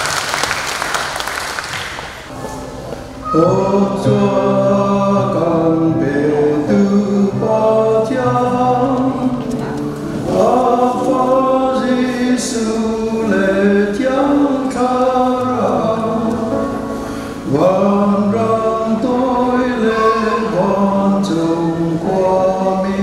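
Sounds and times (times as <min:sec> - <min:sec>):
choir singing a slow hymn: 0:03.2 - 0:23.0.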